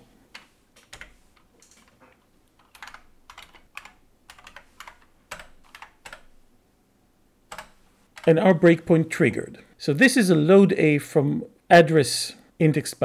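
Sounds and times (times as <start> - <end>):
faint computer keyboard typing: 0.3 - 6.3, 7.5 - 8.4.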